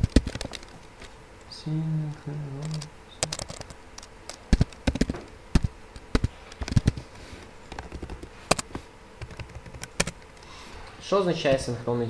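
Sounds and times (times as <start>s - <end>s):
keyboard key clicks: 2.7s - 7.0s.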